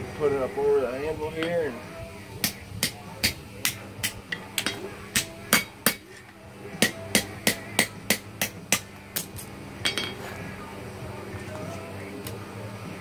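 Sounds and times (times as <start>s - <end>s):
hammer striking steel on anvil: 2.4s - 10.3s.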